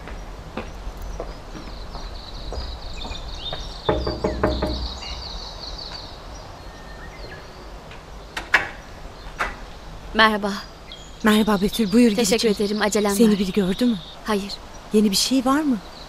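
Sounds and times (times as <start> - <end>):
bird twittering: 2.5 - 6.0, 10.9 - 15.1
knocking on metal grille door: 3.9 - 5.2.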